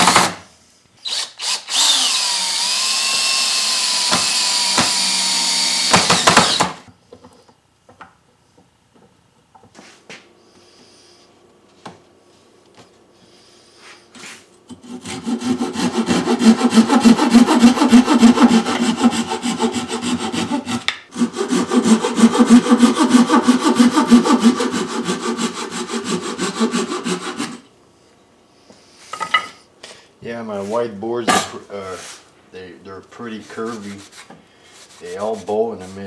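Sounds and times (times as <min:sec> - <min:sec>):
handsaw cutting wood: 0:01.1 - 0:06.8, 0:14.7 - 0:27.7, 0:33.2 - 0:36.0.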